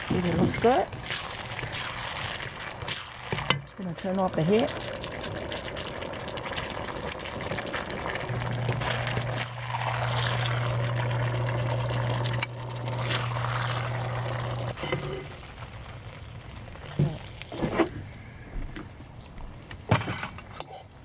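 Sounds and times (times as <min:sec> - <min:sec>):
sauce sizzling in a wok: 0:00.0 - 0:17.0
spatula scraping a wok: 0:14.8 - 0:15.3.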